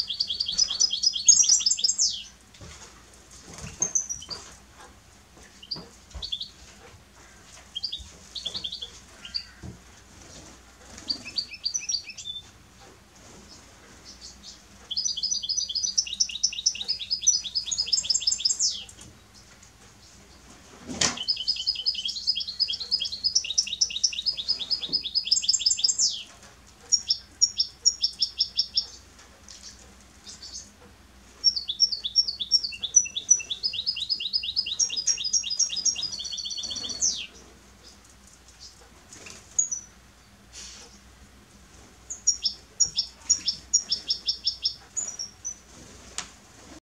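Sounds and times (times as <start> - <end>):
finch singing trills: 0.0 - 2.4, 5.6 - 6.6, 7.7 - 9.7, 11.0 - 12.5, 14.0 - 19.0, 21.1 - 26.3, 26.9 - 29.0, 29.6 - 30.8, 31.4 - 38.0, 42.1 - 45.7.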